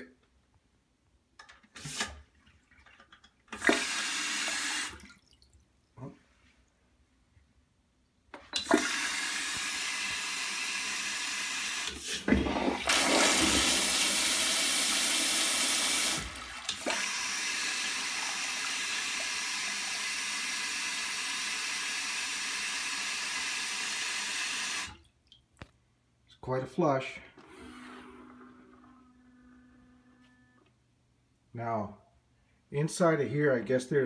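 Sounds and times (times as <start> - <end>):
toilet flushing water rush: 3.5 - 5.0, 8.6 - 25.0, 27.4 - 29.1.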